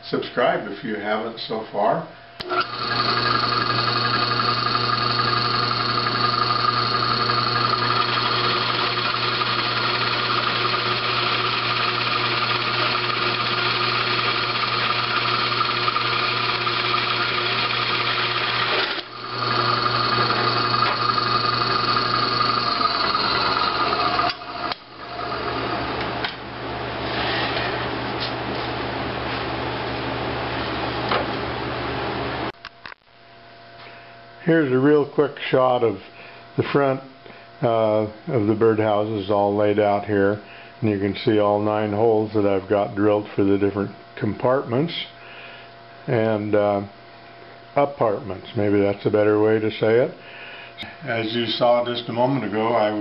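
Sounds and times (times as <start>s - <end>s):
drill press boring wood: 2.4s - 27.8s.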